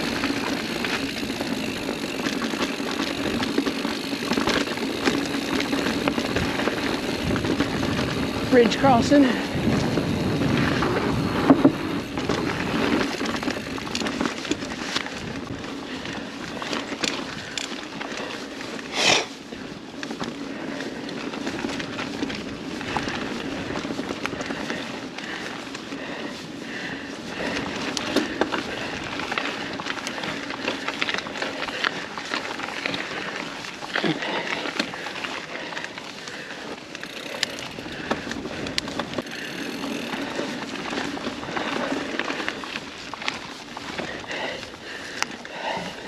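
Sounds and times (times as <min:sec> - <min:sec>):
bike rattling and clicking: 0:00.0 - 0:46.0
bike tyres crunching on dirt: 0:00.0 - 0:46.0
bike clattering over wooden bridge: 0:09.6 - 0:15.6.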